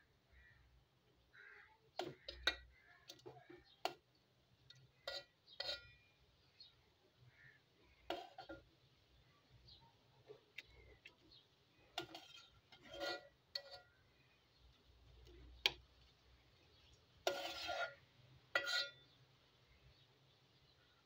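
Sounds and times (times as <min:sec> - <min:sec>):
dishes scraping: 0:02.0 - 0:04.0, 0:05.0 - 0:06.0, 0:08.1 - 0:08.7, 0:11.9 - 0:14.0, 0:17.2 - 0:19.1
dishes clinking: 0:05.0 - 0:06.0, 0:18.6 - 0:19.0.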